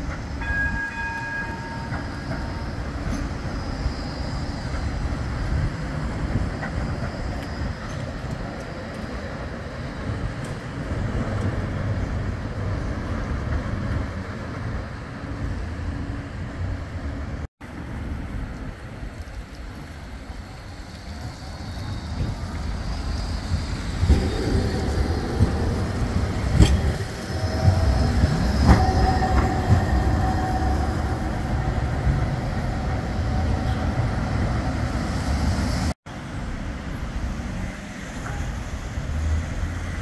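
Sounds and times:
road traffic: 0:00.0 - 0:40.0
tram rumbling past: 0:00.0 - 0:40.0
tram running into stop: 0:00.0 - 0:40.0.

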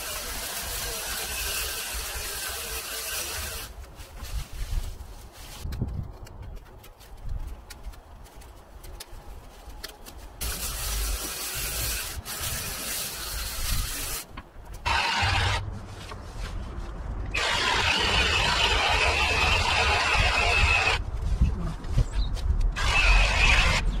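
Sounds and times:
hedge trimmer running: 0:14.8 - 0:15.6.

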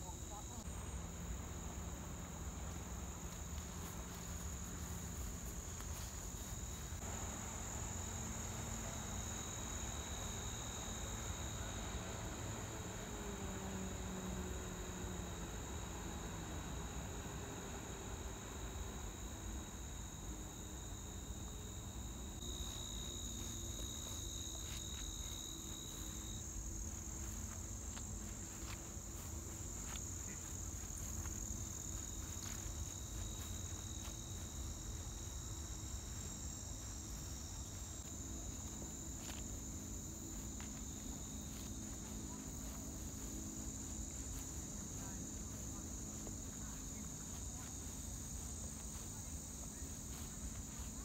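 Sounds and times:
insects chirring: 0:00.0 - 0:51.0.

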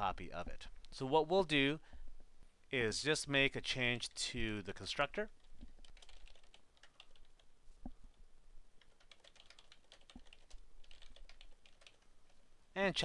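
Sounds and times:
faint keyboard typing: 0:05.2 - 0:08.2, 0:08.8 - 0:12.4.

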